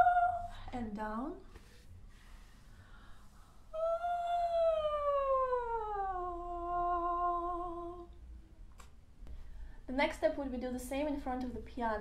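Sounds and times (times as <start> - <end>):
woman singing long sliding note: 0.0 - 0.6, 3.7 - 8.1.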